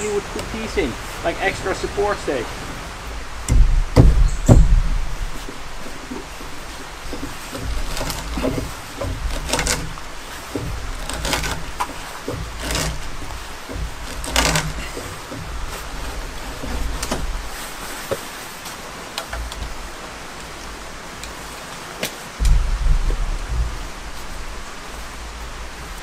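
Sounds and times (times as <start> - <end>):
low uneven rumble: 0.0 - 26.0
hand auger rasping into wood: 5.4 - 17.9.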